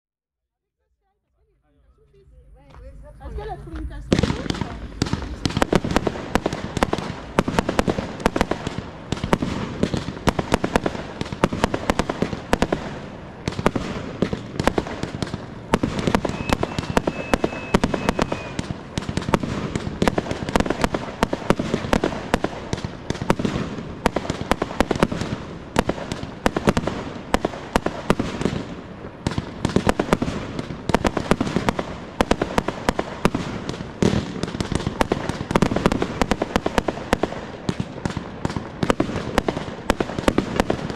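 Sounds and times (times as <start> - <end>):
fireworks bangs and cracks: 2.2 - 40.9
firework whistle: 15.7 - 19.7.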